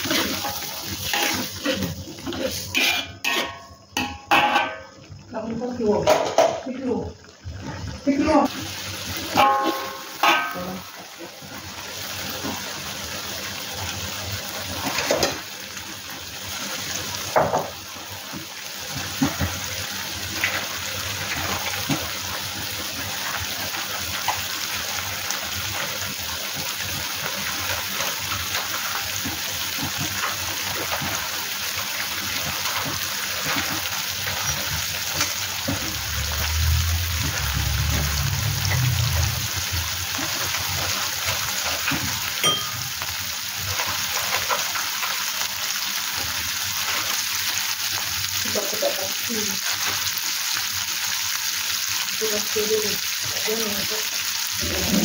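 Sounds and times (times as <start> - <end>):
metal spatula scraping wok: 0.0 - 4.8
chili paste sizzling in wok: 0.0 - 55.0
low rumble: 36.0 - 40.1.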